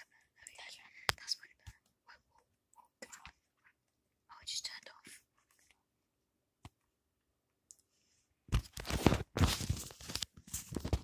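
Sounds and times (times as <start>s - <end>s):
rustling and crunching: 8.6s - 11.0s.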